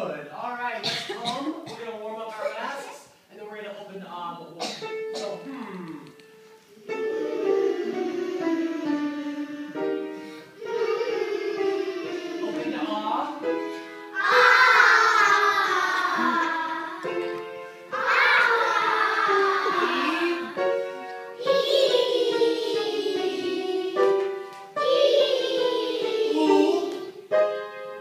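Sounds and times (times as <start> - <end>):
children singing: 6.8 - 27.3.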